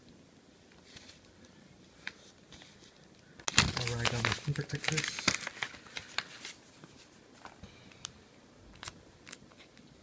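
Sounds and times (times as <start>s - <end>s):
plastic packaging crinkling: 3.0s - 8.0s.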